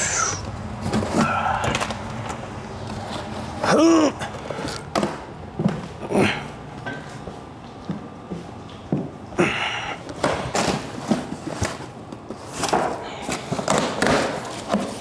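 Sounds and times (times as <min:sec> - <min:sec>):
cardboard boxes knocking: 0:12.6 - 0:15.0.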